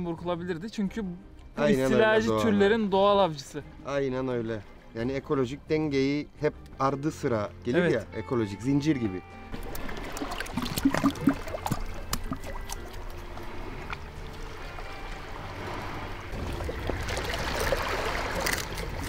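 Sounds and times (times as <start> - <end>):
sea water washing over rocks: 9.5 - 19.0.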